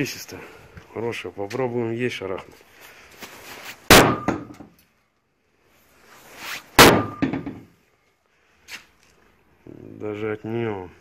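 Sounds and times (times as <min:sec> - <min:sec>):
sledgehammer clanging on metal hood: 0:03.9 - 0:04.6, 0:06.8 - 0:07.7.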